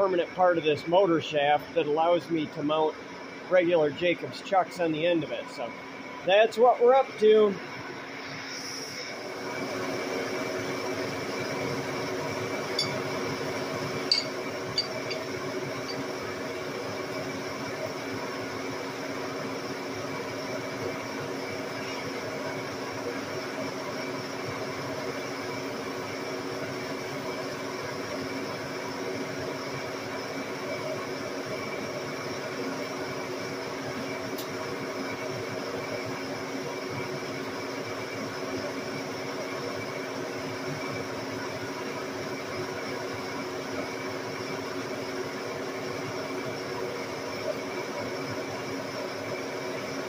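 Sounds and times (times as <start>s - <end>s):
lathe motor humming and whining: 0.0s - 50.0s.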